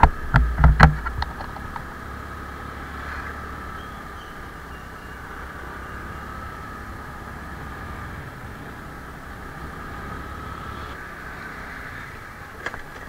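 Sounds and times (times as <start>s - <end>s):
motor scooter engine hum: 0.0s - 13.0s
road noise: 0.0s - 13.0s.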